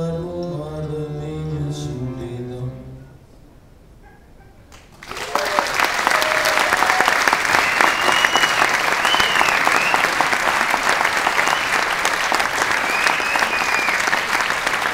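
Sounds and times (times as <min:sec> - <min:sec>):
audience applauding: 0:04.7 - 0:14.9
high whistles: 0:07.4 - 0:10.2, 0:11.2 - 0:12.0, 0:12.7 - 0:14.3.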